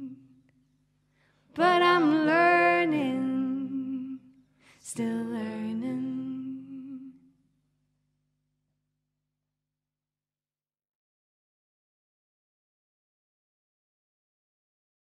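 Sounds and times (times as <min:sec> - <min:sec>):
person singing wordlessly: 0:00.0 - 0:00.2, 0:01.6 - 0:04.3, 0:04.9 - 0:07.2.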